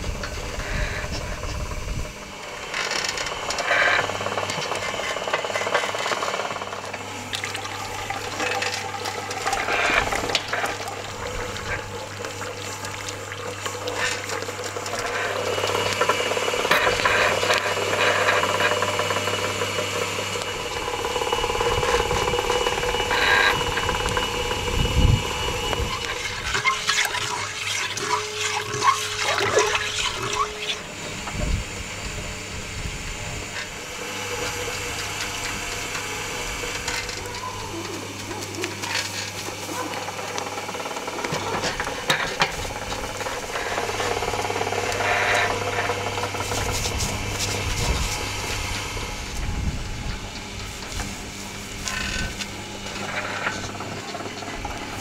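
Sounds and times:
rotisserie motor hum: 0.0 - 55.0
liquid splashing and dripping: 7.3 - 15.1.

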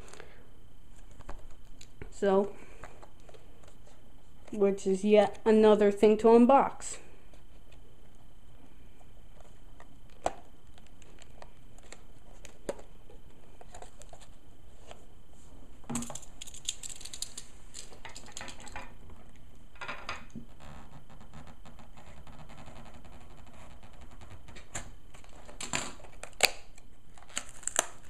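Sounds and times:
plastic blister pack crackling: 26.1 - 28.0.

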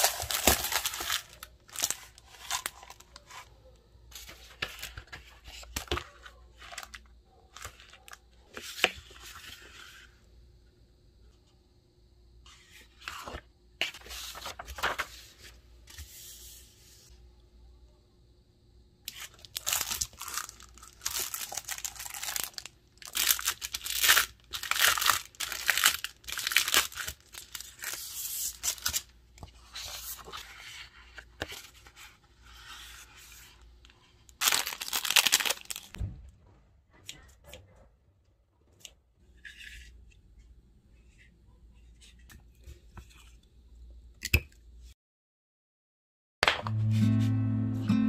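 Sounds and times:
paper and plastic wrap rustling: 0.0 - 3.5, 13.2 - 15.6, 19.1 - 29.1, 34.3 - 36.0.

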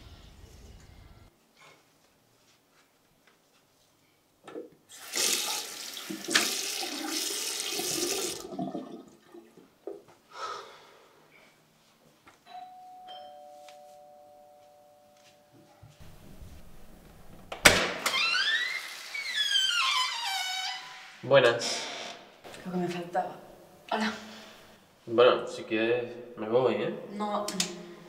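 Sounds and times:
tap water running into sink: 5.0 - 8.9
two-note doorbell ringing: 12.5 - 15.8.

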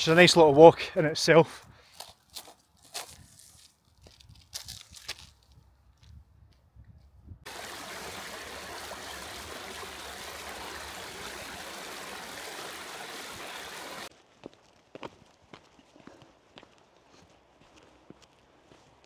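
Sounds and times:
footsteps on gravel: 1.8 - 6.2, 14.1 - 19.0
stream running over stones: 7.5 - 14.1.

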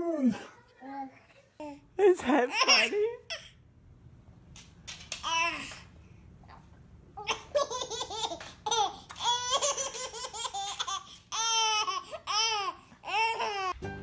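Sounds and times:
baby laughing: 7.2 - 13.8.

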